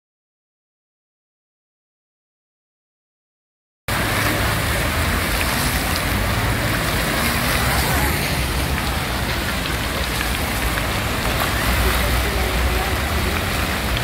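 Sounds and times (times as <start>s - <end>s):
fountain jets splashing: 3.9s - 14.0s.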